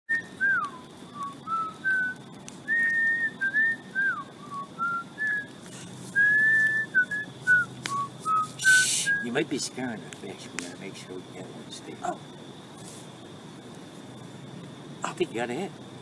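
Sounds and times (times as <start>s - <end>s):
man whistling a slow tune: 0.1s - 9.4s.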